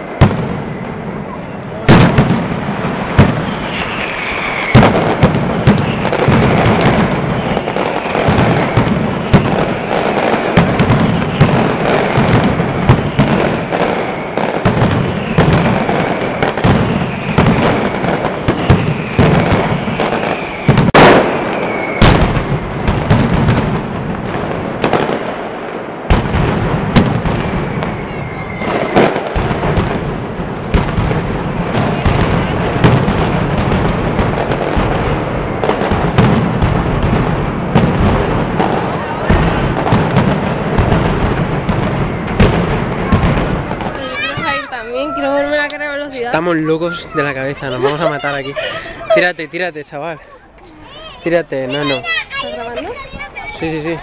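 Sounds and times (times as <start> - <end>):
heavy booms: 0.0 - 3.8, 4.8 - 25.4, 26.0 - 44.7
firecracker bangs: 0.0 - 49.2
short falling whistles: 3.4 - 4.9, 18.7 - 22.2.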